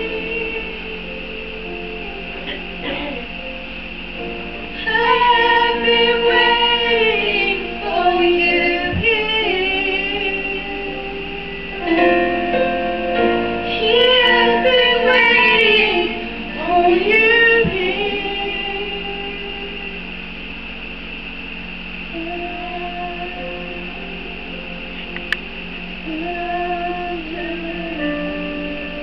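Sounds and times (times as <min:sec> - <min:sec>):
woman singing worship song: 0:00.0 - 0:01.6, 0:04.7 - 0:12.4, 0:13.6 - 0:20.2, 0:22.1 - 0:24.5, 0:26.0 - 0:29.0
instrumental music: 0:00.0 - 0:19.9.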